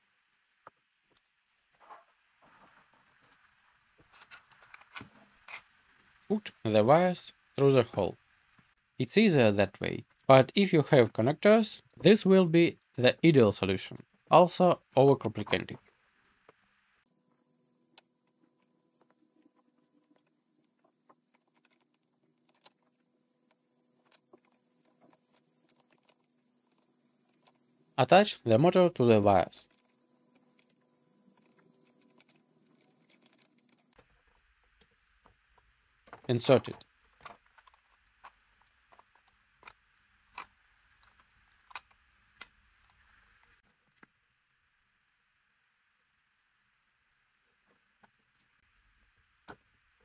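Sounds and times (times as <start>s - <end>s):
plastic parts clicking: 35.5s - 43.2s.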